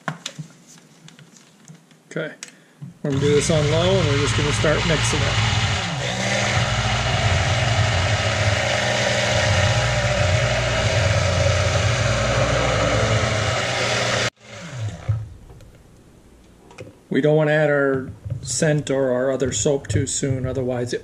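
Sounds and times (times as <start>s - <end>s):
stick blender running: 3.1s - 15.4s.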